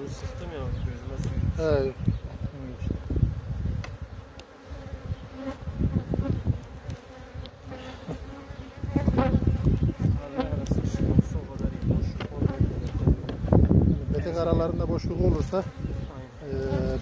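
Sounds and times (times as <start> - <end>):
bees buzzing: 0.0 - 17.0.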